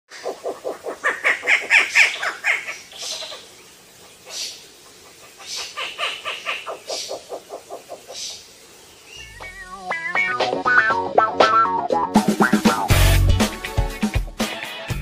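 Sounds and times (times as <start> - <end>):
owls calling: 0.1 - 3.6, 4.2 - 11.0.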